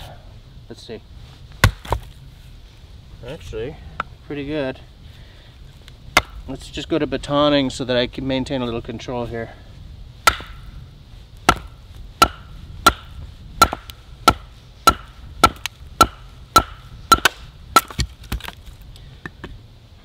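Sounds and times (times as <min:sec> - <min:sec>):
baton knocking on hatchet head: 0:10.3 - 0:10.6, 0:11.5 - 0:18.1.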